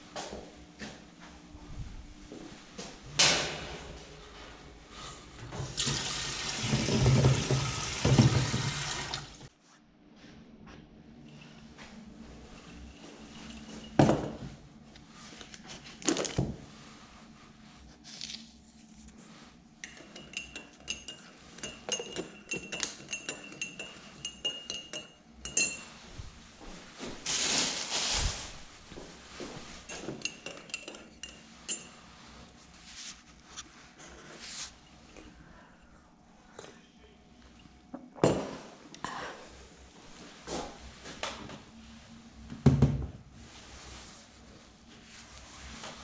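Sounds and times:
plastic tubs knocking: 0:06.6 - 0:08.8
spoon clinking in mug: 0:19.8 - 0:25.9, 0:29.9 - 0:32.0
rustling: 0:26.2 - 0:29.9.

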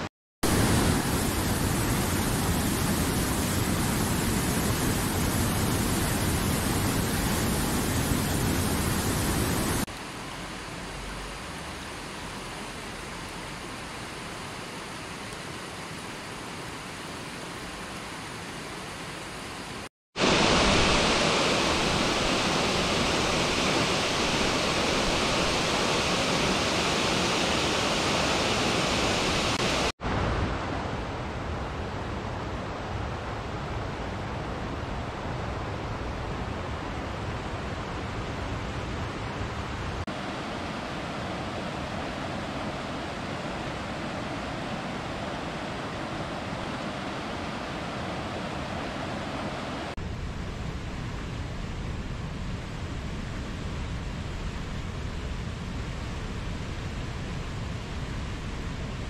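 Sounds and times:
river rushing: 0:00.0 - 0:50.1.

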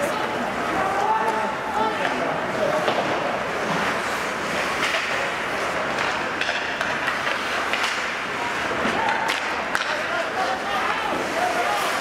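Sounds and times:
skates scraping on ice: 0:00.0 - 0:12.0
hockey sticks and puck knocking: 0:04.6 - 0:10.1.

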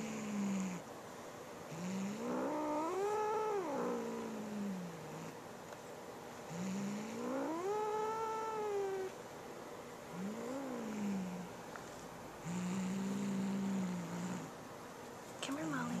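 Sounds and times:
cat growling: 0:01.7 - 0:05.4, 0:06.5 - 0:09.2, 0:10.1 - 0:11.5, 0:12.4 - 0:14.6.

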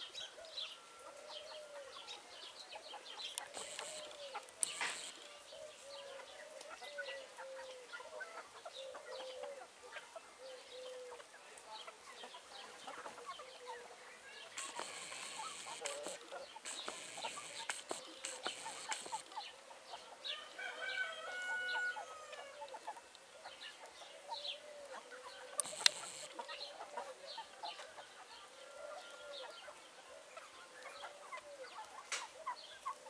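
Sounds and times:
chickens clucking: 0:00.0 - 0:33.0
high chirps: 0:03.4 - 0:05.2, 0:14.6 - 0:19.3, 0:25.6 - 0:26.4
sharp click: 0:03.4 - 0:05.2, 0:14.6 - 0:19.3, 0:25.6 - 0:26.3.

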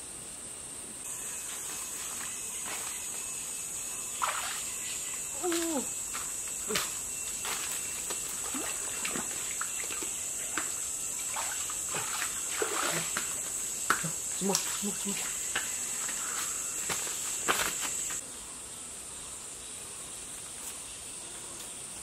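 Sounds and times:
steady high hiss: 0:00.0 - 0:22.0
water splashing and sloshing: 0:04.2 - 0:15.5.

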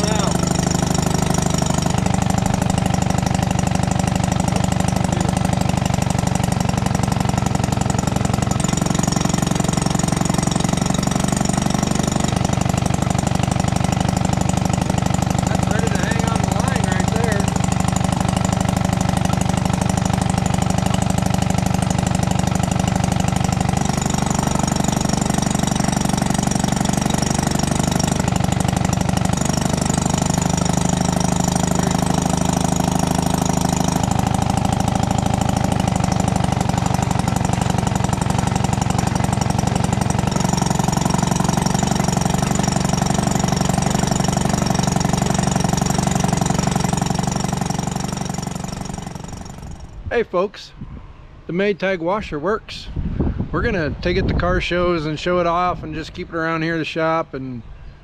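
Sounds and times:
gas engine running: 0:00.0 - 0:50.0.

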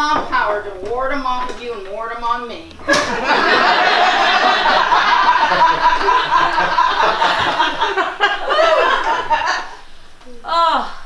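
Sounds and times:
audience laughing loudly: 0:02.9 - 0:09.8.

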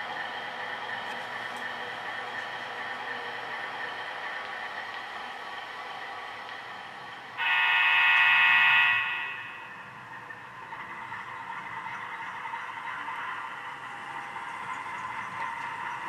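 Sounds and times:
model train horn blast: 0:07.4 - 0:09.8.

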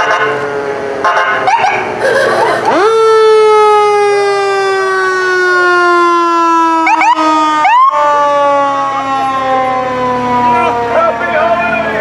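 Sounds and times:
fire truck siren wailing: 0:00.0 - 0:12.0
rising siren whoops: 0:00.0 - 0:12.0.

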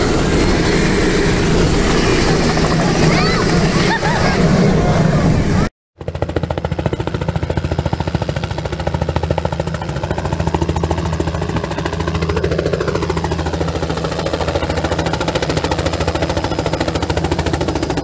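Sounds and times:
low engine drone: 0:00.0 - 0:05.7
helicopter rotor chop: 0:00.0 - 0:18.0.

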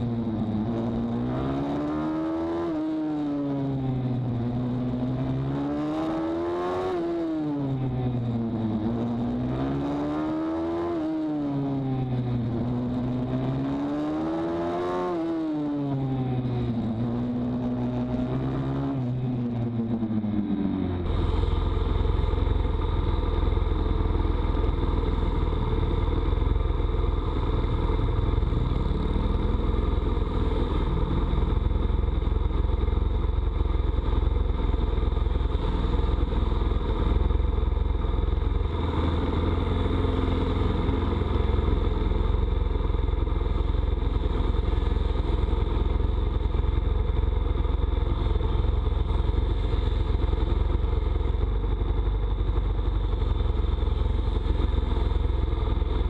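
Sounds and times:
faint pit bike engine revving: 0:00.0 - 0:56.0
pit bike engine idling: 0:21.0 - 0:56.0.

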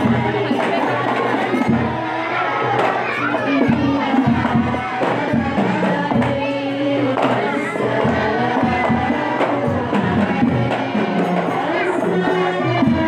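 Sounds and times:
hand drum: 0:00.0 - 0:13.0
person singing devotional song: 0:00.0 - 0:13.0.

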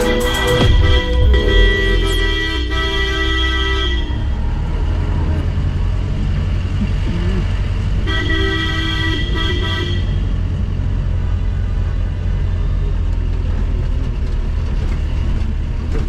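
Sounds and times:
vehicle horn honking: 0:00.0 - 0:04.6, 0:08.0 - 0:10.3
engine low rumble: 0:00.0 - 0:16.0.

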